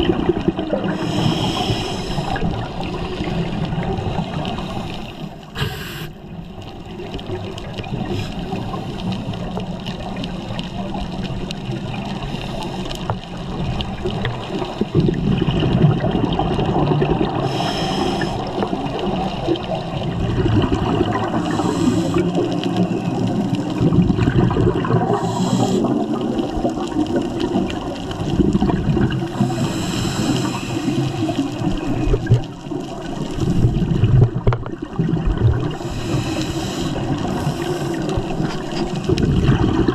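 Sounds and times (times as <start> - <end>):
churning water noise: 0.0 - 39.9
gurgling exhaled bubbles: 0.0 - 39.9
diver breathing through regulator: 0.8 - 2.6, 4.6 - 6.2, 17.4 - 18.7, 21.3 - 22.7, 25.1 - 26.1, 29.4 - 31.4, 35.7 - 39.0.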